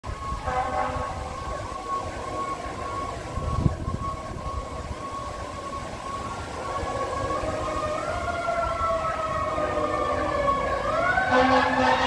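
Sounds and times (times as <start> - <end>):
fire engine siren wailing: 0.0 - 12.0
traffic rumble: 0.0 - 12.0
air horn blast: 0.3 - 1.4, 11.2 - 12.0.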